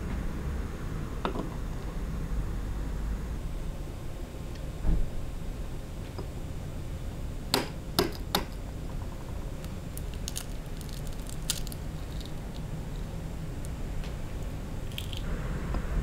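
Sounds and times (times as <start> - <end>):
eggshell crackling: 9.4 - 15.3.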